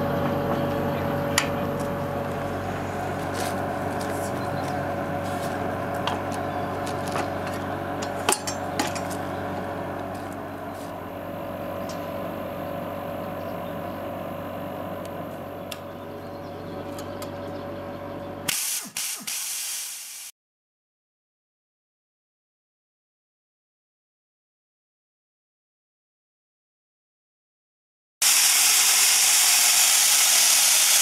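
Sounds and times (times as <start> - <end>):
machine hum: 0.0 - 19.3
metal clanks: 6.8 - 9.2
compressed air hissing: 18.5 - 20.3.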